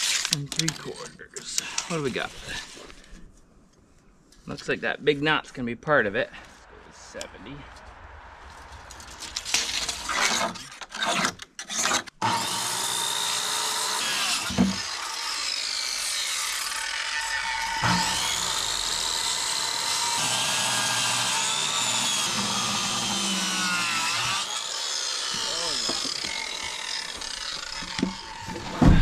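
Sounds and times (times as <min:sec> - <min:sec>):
power saw cutting wood: 0:09.5 - 0:29.0
knocks of wooden board: 0:27.8 - 0:29.0.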